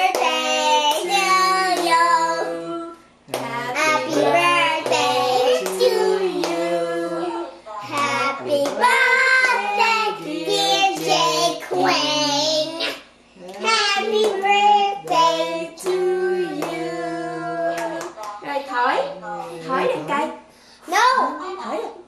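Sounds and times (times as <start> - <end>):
people singing together: 0.0 - 13.0, 13.7 - 18.3.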